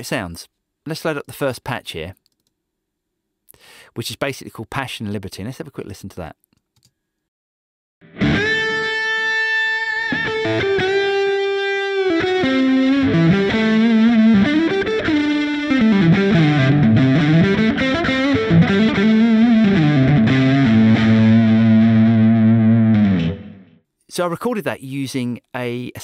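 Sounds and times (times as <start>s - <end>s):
distorted electric guitar lead: 8.0s - 23.8s.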